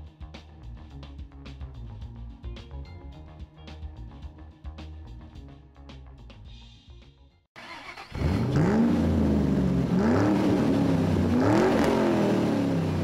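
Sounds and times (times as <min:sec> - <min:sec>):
car engine revving: 0:07.6 - 0:13.0.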